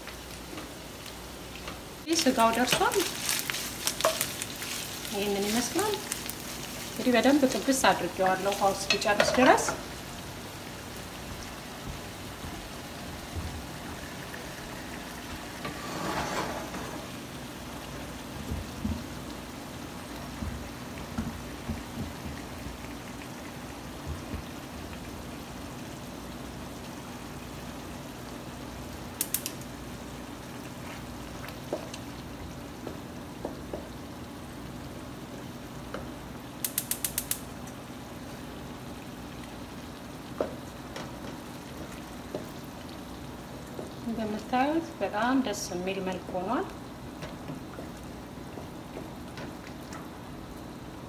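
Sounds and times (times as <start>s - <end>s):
sauce sizzling in a frying pan: 0.0s - 51.0s
sharp clicks: 36.6s - 37.4s.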